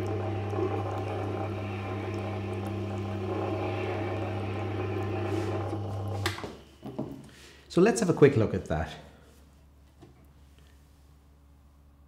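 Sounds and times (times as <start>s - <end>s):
sharpening machine humming: 0.0s - 7.0s.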